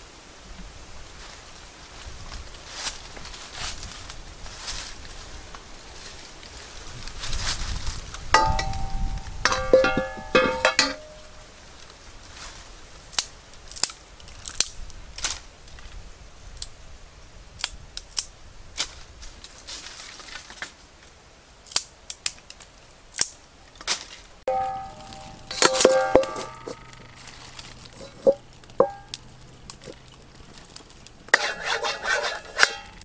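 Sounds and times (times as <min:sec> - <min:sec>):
ringing tones: 0:08.4 - 0:11.4, 0:24.5 - 0:27.3, 0:28.0 - 0:29.2
sticks snapping: 0:13.1 - 0:15.4, 0:21.6 - 0:31.2.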